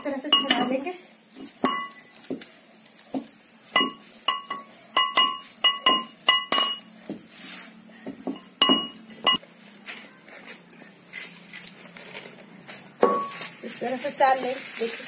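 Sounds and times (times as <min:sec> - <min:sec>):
metal pestle clinking in mortar: 0:00.0 - 0:00.8, 0:01.5 - 0:02.3, 0:03.2 - 0:07.0, 0:08.2 - 0:09.4, 0:13.0 - 0:13.4.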